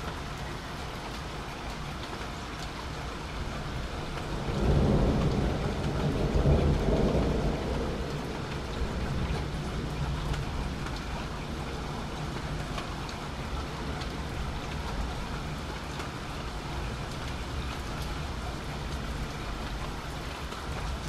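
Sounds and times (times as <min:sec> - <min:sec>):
steady rain falling: 0:00.0 - 0:21.0
thunder rumbling: 0:04.3 - 0:11.3.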